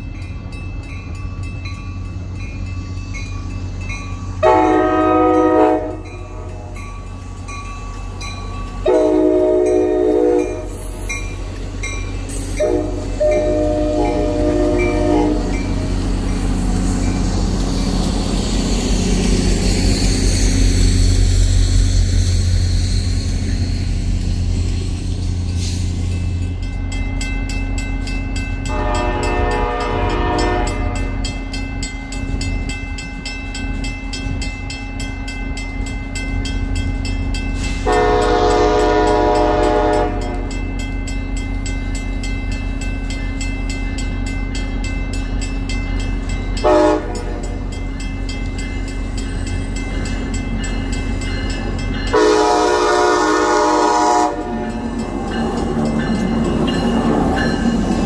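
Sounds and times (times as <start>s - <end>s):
train air horn blasts: 4.4s - 6.7s, 8.8s - 10.9s, 12.5s - 15.8s, 28.7s - 31.2s, 37.7s - 40.5s, 46.6s - 47.5s, 52.1s - 54.8s.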